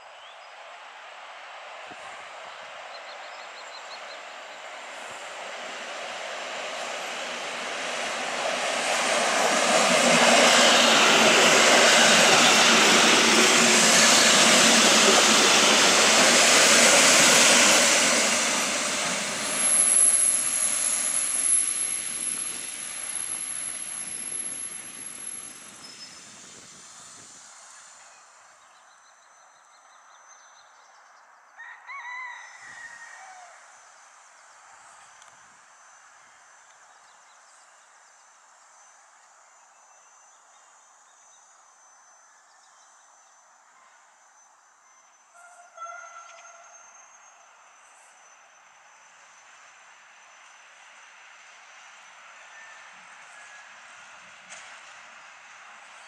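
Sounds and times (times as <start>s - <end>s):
train running on rails: 0.0s - 30.1s, 43.0s - 56.0s
thin high whine: 6.8s - 28.2s.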